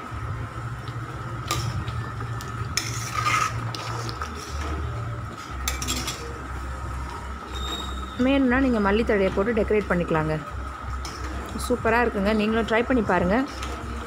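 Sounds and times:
steady low hum: 0.0 - 14.0
ladle stirring boiling curry: 1.4 - 6.3
ladle clinking and scraping pan: 2.8 - 4.8, 5.6 - 6.4.

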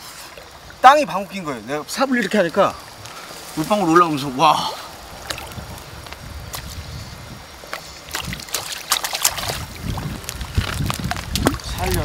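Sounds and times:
water sloshing and splashing: 0.0 - 6.9, 7.5 - 12.0
sharp splashes: 7.7 - 12.0.

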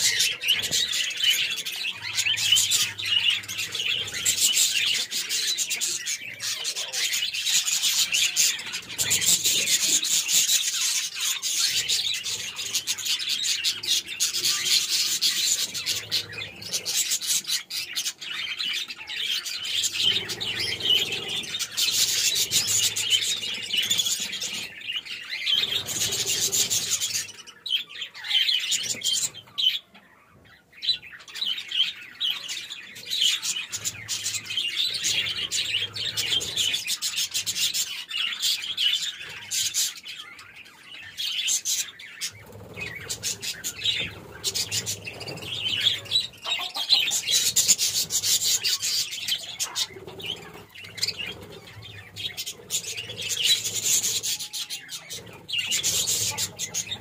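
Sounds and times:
budgerigars chattering: 0.0 - 57.0
wings fluttering: 41.7 - 57.0.

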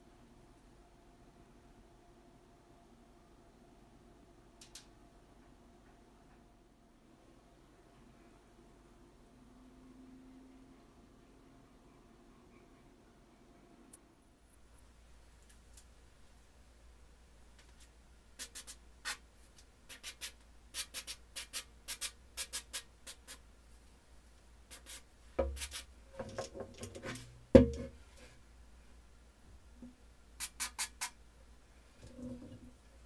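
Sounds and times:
aerosol spray can squirts: 19.9 - 23.4, 24.7 - 25.9, 30.4 - 31.1.

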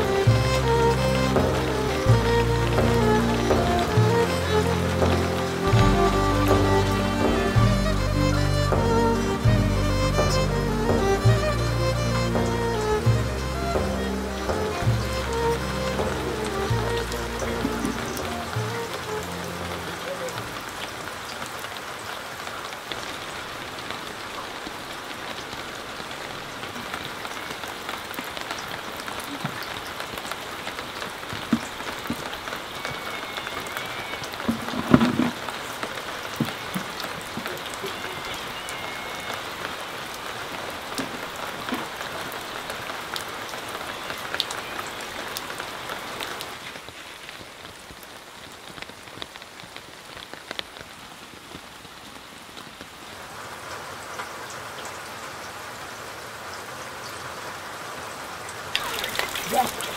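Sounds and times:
rain falling: 0.0 - 59.9.

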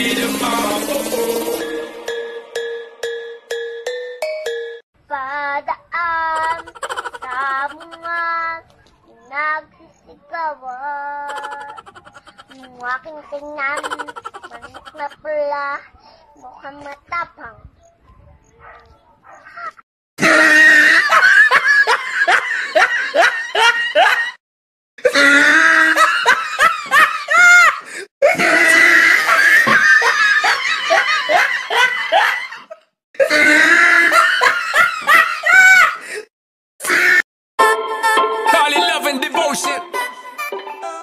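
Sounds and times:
loud hearty laughter: 6.4 - 8.2, 11.3 - 12.7, 13.8 - 15.2, 20.2 - 24.4, 25.1 - 36.0.

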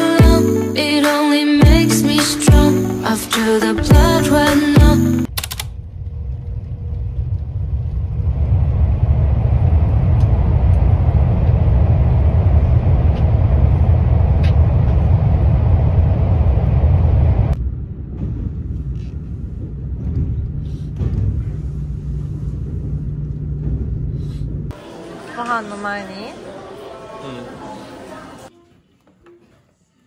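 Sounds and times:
train rumbling: 5.3 - 28.5.

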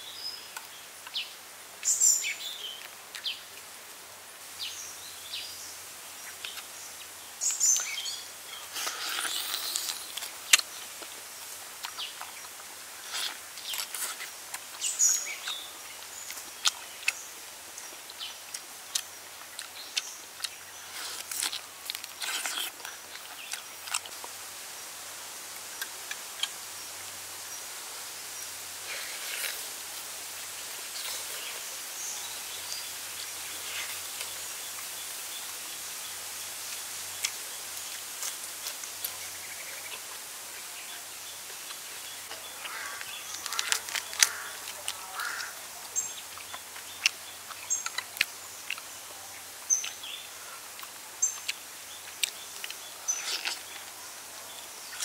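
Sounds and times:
outdoor forest hiss: 0.0 - 55.0
person chewing chicken: 8.8 - 10.7, 20.4 - 24.3.

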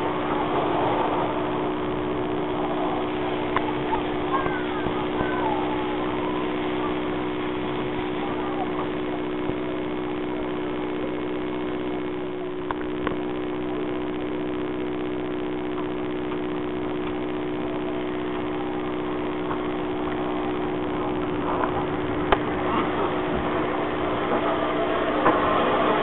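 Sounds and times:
steam locomotive humming: 0.0 - 26.0
steam hissing: 19.7 - 26.0.

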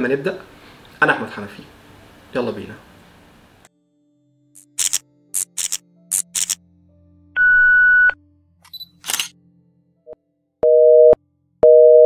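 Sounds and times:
sharp click-like burst: 4.6 - 6.6
high steady beep: 10.6 - 12.0
telephone busy signal: 10.6 - 12.0.

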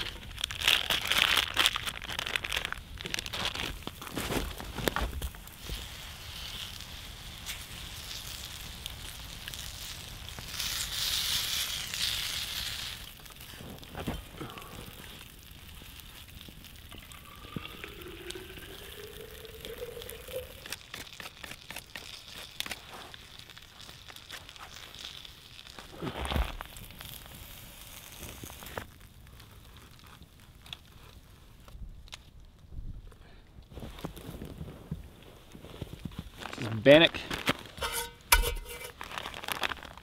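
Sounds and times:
campfire crackling: 0.0 - 40.0
sausages sizzling in a frying pan: 5.3 - 26.0, 26.6 - 29.6.

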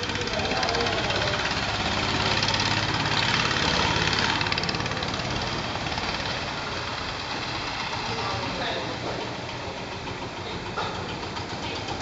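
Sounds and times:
motorboat engine knocking: 0.0 - 12.0.

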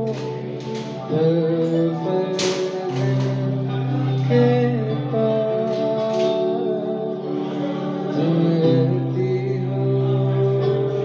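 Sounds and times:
man singing: 0.0 - 11.0.

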